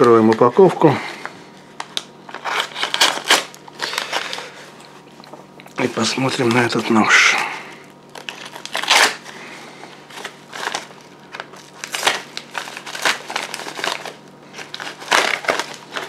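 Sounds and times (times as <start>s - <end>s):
plastic bag crinkling: 0.0s - 16.0s.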